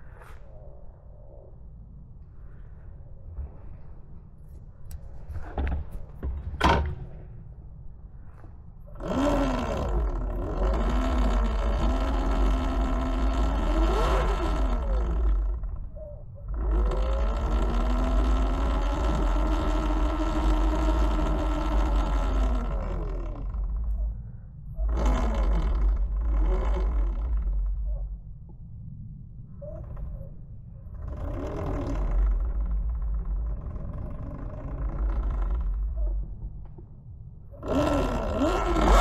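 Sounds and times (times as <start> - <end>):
wind rumble on microphone: 0.0 - 39.0
electric motor whining: 9.0 - 24.1, 24.8 - 28.1, 31.0 - 36.2, 37.6 - 39.0.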